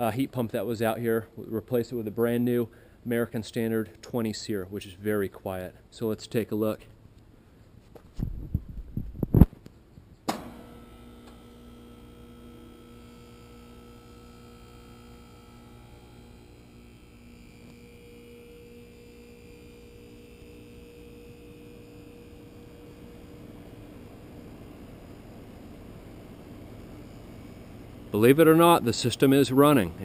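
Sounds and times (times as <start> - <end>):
heat pump humming: 10.3 - 30.0.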